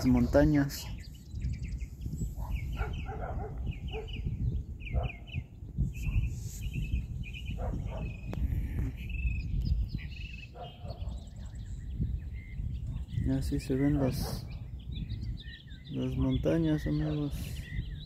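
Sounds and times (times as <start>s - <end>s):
small birds chirping: 0.0s - 18.0s
wind rumble: 0.0s - 18.0s
dog barking: 2.4s - 4.2s, 4.9s - 5.3s, 7.6s - 8.2s, 10.5s - 11.3s.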